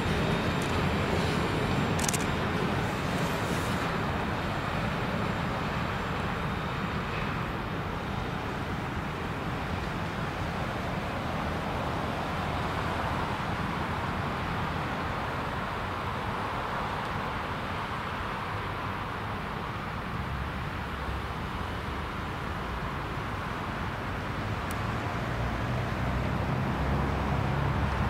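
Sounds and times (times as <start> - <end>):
freight train rolling past: 0.0 - 14.8.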